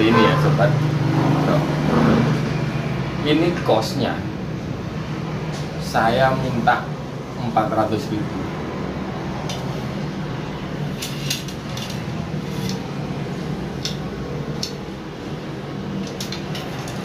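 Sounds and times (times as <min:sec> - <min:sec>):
fishing rods clicking and tapping: 0:13.8 - 0:14.8, 0:16.0 - 0:17.0.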